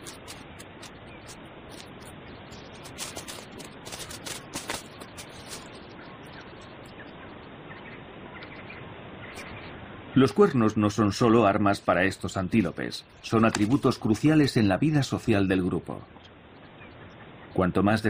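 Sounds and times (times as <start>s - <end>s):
steady hiss: 0.0s - 16.5s
faint bird chirps: 4.8s - 10.5s, 16.0s - 17.8s.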